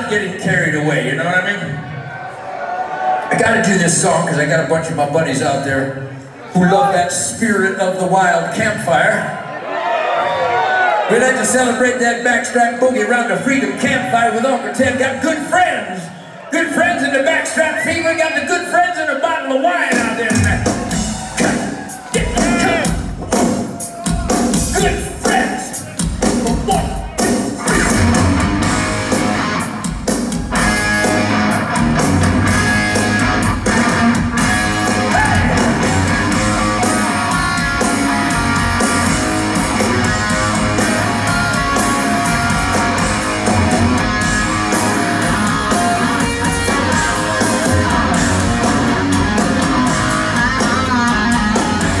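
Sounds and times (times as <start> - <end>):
drum kit: 19.8 - 52.0
bass guitar: 26.0 - 52.0
distorted electric guitar: 26.0 - 52.0.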